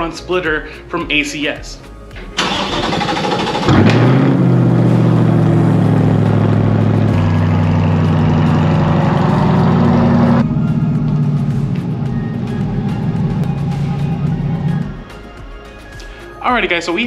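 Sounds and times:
engine revving and idling: 0:02.4 - 0:15.2.

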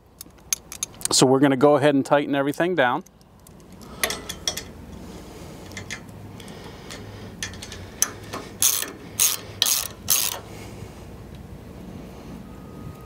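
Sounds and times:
socket ratchet wrench clicking: 0:05.7 - 0:10.5.

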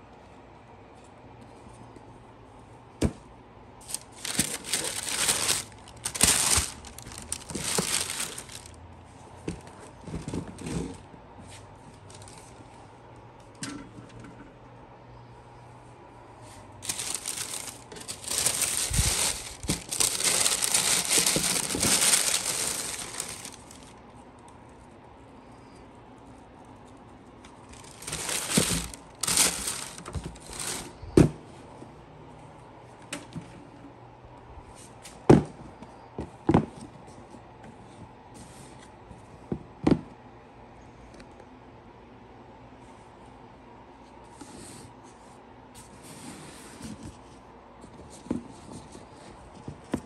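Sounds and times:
paper wrapping crinkling: 0:03.8 - 0:08.8, 0:16.8 - 0:24.0, 0:27.6 - 0:31.0.

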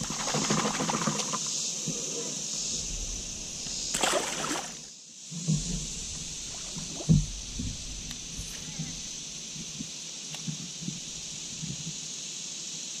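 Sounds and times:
water sloshing and splashing: 0:00.0 - 0:02.0, 0:02.7 - 0:09.8
steady high-pitched hiss: 0:00.0 - 0:13.0
dull knocks: 0:05.4 - 0:09.9.

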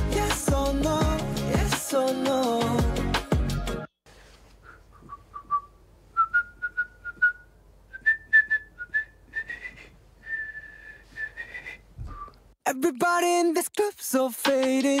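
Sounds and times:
man whistling a tune: 0:04.6 - 0:12.5.

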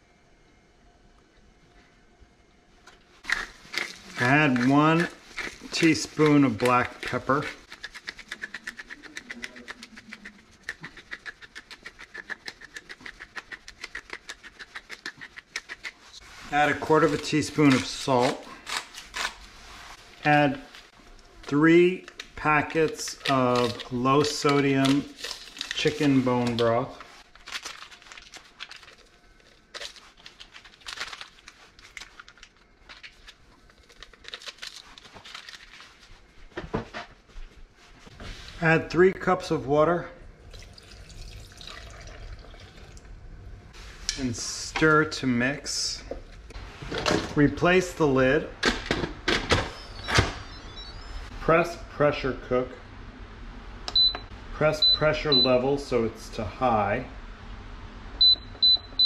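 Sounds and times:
powder packets crinkling: 0:03.2 - 0:16.0, 0:16.6 - 0:19.5, 0:20.5 - 0:36.2.

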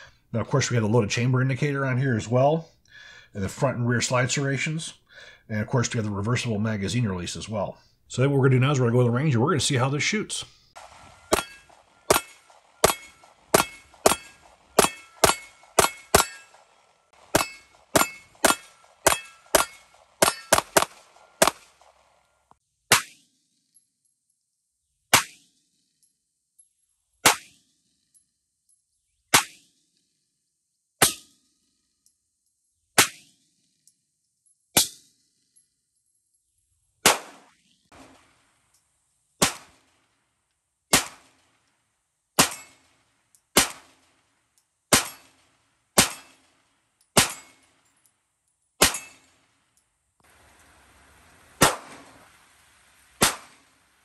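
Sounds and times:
pistol shots: 0:10.8 - 0:22.0, 0:37.0 - 0:38.4, 0:39.4 - 0:39.9, 0:40.9 - 0:41.4, 0:42.4 - 0:42.9, 0:43.6 - 0:44.1, 0:44.9 - 0:45.4, 0:46.0 - 0:46.6, 0:47.2 - 0:47.6, 0:48.8 - 0:49.3, 0:51.6 - 0:52.1, 0:53.2 - 0:53.7.

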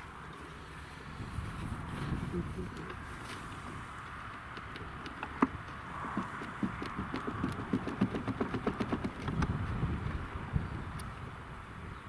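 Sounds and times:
plastic parts clicking and knocking: 0:04.1 - 0:09.5.

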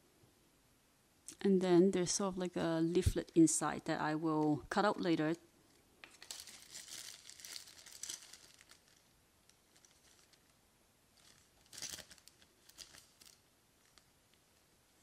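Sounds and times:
plastic bag crinkling: 0:06.0 - 0:10.6, 0:11.2 - 0:14.2.

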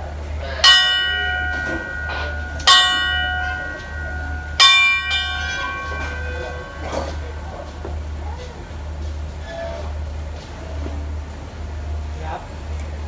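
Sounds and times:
station bell ringing: 0:00.3 - 0:08.4.

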